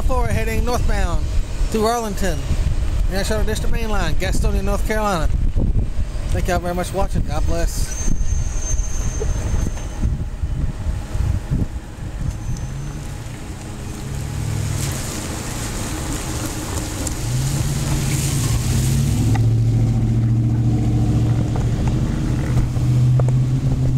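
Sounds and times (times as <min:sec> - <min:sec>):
low engine hum: 0:00.0 - 0:23.9
tyre hiss on wet pavement: 0:12.6 - 0:19.5.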